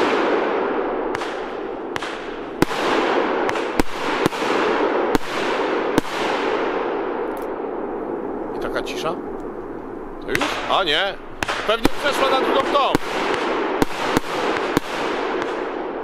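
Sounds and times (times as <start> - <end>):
echoes of bangs: 0.0 - 16.0
firework cake bangs: 11.4 - 15.7.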